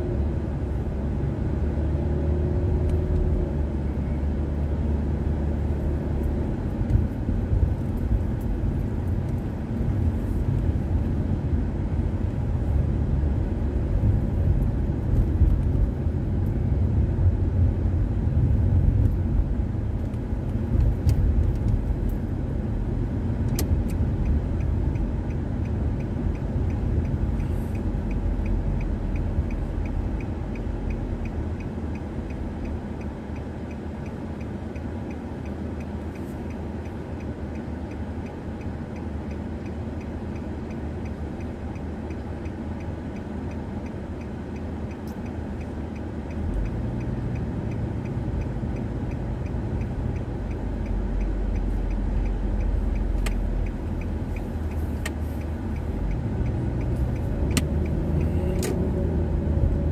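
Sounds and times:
car engine: 0.0 - 59.9
road noise inside car cabin: 0.0 - 59.9
turn signal indicator clicking: 2.8 - 17.4, 18.2 - 59.9.

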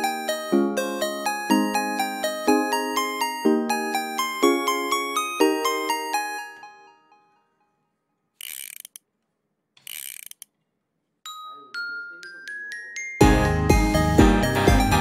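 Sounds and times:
rasping ratcheting sounds: 8.4 - 9.1, 9.8 - 10.6.

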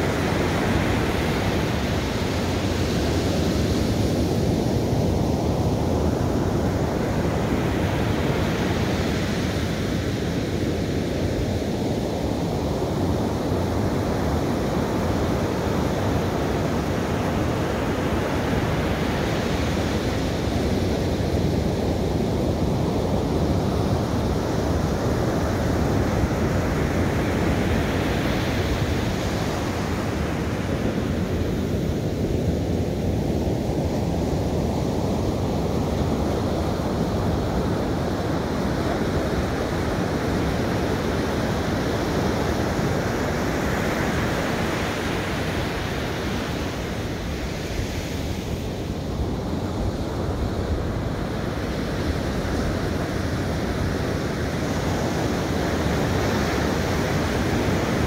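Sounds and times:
ocean waves breaking on beach: 0.0 - 58.0.

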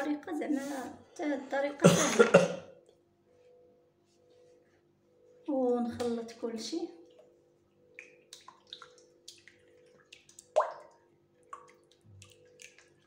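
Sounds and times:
hand mixing wet batter in bowl: 5.5 - 13.0.

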